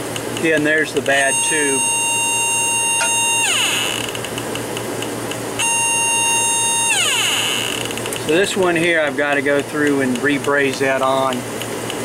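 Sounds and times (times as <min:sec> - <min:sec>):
leak detector shrill tone: 0:01.0 - 0:04.2, 0:05.6 - 0:08.0.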